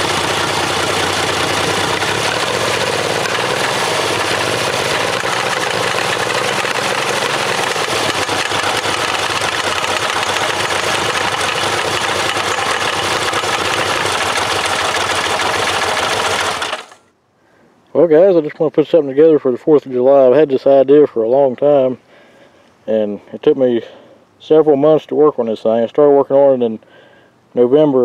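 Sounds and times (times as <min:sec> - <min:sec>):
small engine running: 0:00.0 - 0:17.0.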